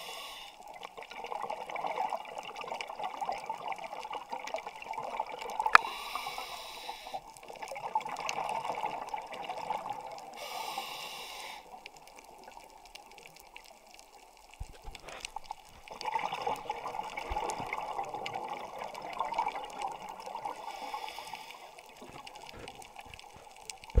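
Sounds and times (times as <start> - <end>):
muffled underwater sloshing: 0.7 - 24.0.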